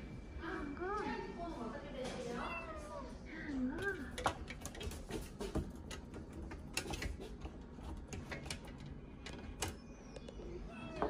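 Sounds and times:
cat litter rustling and clicking: 3.8 - 9.8.

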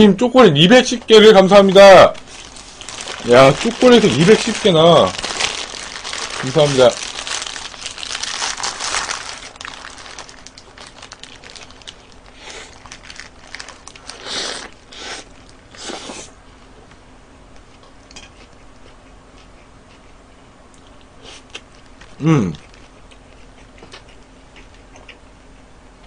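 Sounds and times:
paper wrapper crinkling: 0.7 - 15.6
crunchy bites and chewing: 2.2 - 16.1.

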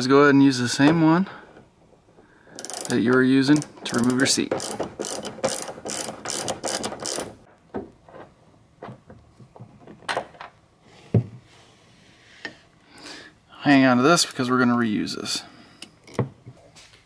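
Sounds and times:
ratchet wrench clicking rapidly: 2.6 - 7.4.

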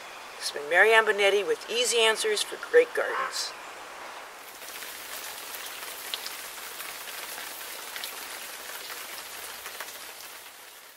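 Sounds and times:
water sprinkling onto plants: 4.4 - 10.9.

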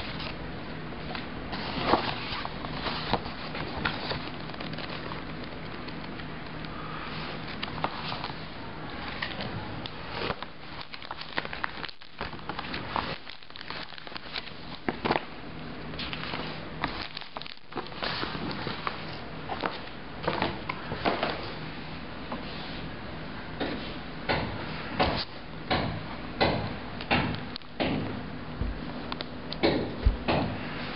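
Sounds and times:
booklet pages flipping: 0.0 - 0.4, 1.0 - 15.3, 15.9 - 21.6
loose papers shuffling: 1.0 - 6.2, 6.8 - 15.3, 16.0 - 21.6.

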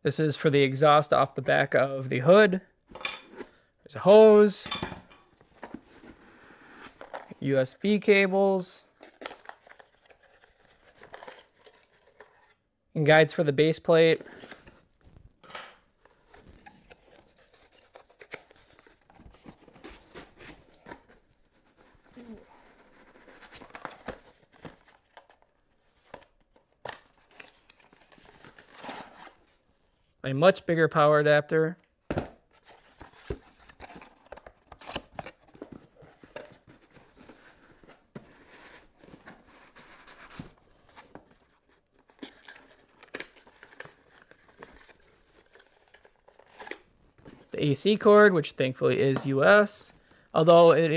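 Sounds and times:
cardboard and foam rustling: 32.5 - 47.6.

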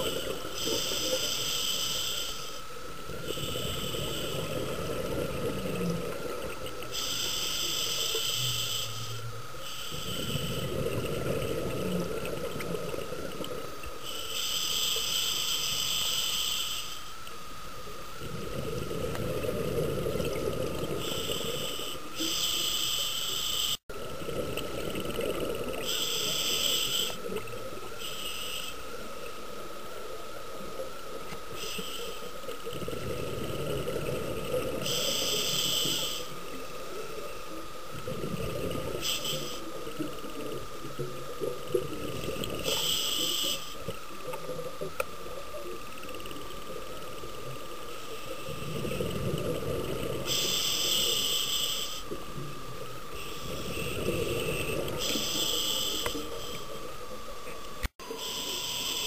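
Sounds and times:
regulator breathing hiss: 0.0 - 5.7, 6.8 - 10.9, 14.0 - 17.2, 20.9 - 23.8, 25.8 - 29.0, 31.5 - 32.5, 34.4 - 37.6, 38.9 - 40.5, 41.3 - 44.3, 50.2 - 56.9, 58.0 - 59.0
steady thin whine: 0.0 - 59.0
exhaled bubbles rumbling: 2.9 - 6.9, 9.3 - 13.8, 18.1 - 21.6, 23.9 - 25.9, 32.6 - 35.0, 37.8 - 39.1, 48.4 - 50.4.

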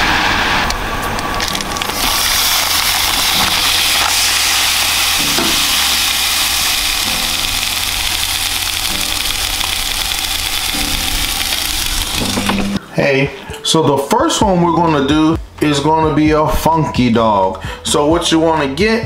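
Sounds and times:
low hum: 0.1 - 13.5
sausages sizzling on a grill: 1.6 - 12.8.

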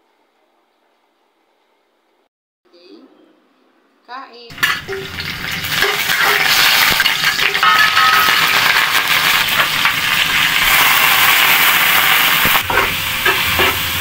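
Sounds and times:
onions sizzling in hot oil: 4.5 - 14.0.

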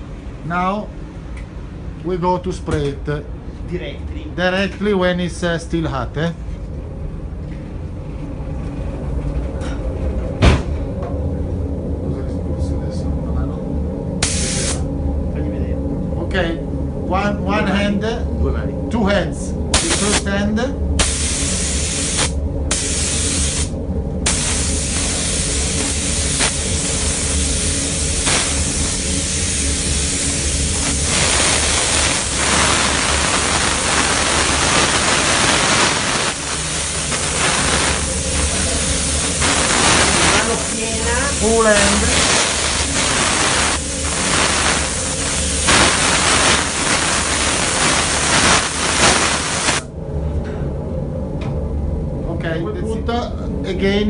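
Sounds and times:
steady low hum: 0.0 - 54.0
spray gun hissing: 14.2 - 14.8, 19.8 - 20.2, 21.0 - 23.7, 24.3 - 49.8.

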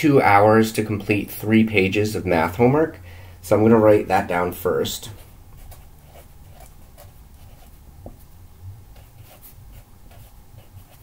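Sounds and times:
marker writing on paper: 5.1 - 8.2, 8.9 - 11.0.

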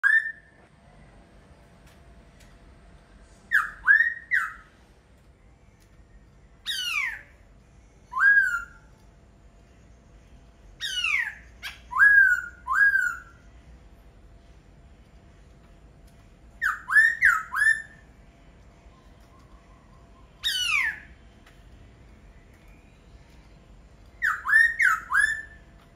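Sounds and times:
bird whistled song: 0.0 - 0.6, 3.4 - 4.8, 6.6 - 9.0, 10.8 - 13.5, 16.5 - 18.2, 18.9 - 21.6, 24.1 - 25.9.

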